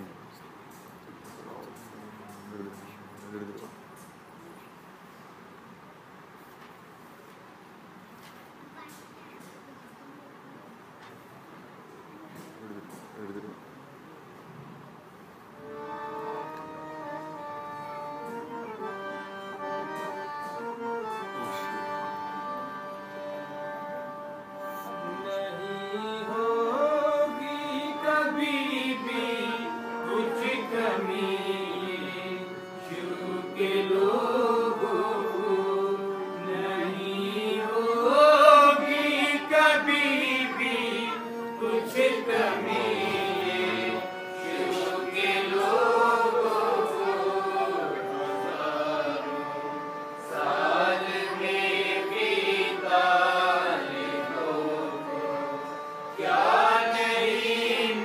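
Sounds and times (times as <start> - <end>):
steady held tones: 15.5 - 58.0
person singing long notes: 24.6 - 58.0.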